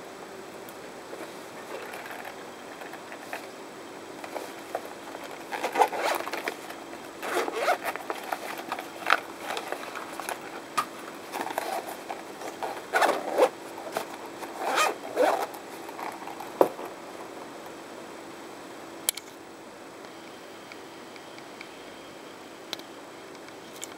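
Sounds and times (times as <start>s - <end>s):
zipper being opened and closed: 4.2s - 10.6s, 11.2s - 16.4s.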